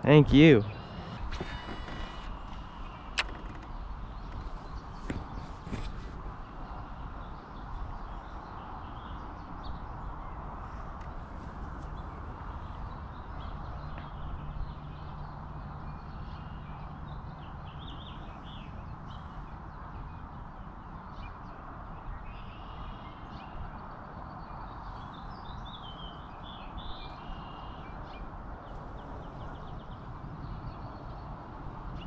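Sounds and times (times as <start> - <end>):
birds chirping: 0.0 - 10.5.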